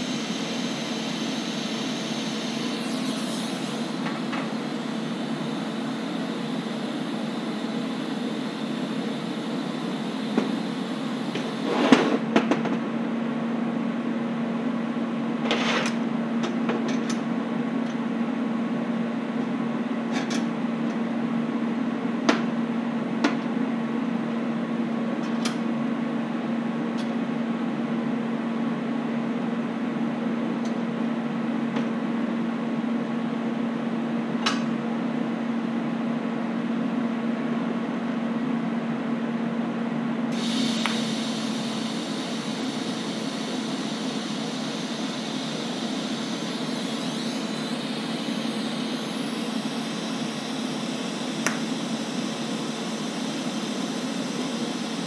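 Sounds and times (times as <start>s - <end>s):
welding arc hissing: 0.0s - 12.2s, 40.3s - 55.0s
shop equipment humming: 0.0s - 55.0s.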